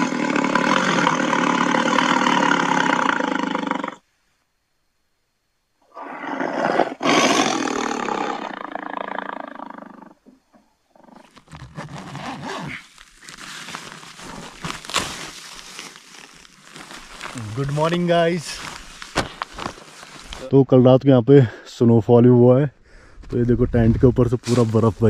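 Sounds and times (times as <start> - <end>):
big cat roaring: 0.0 - 4.0, 5.9 - 10.3
tent fabric and snow rustling: 11.2 - 20.6, 24.2 - 25.0.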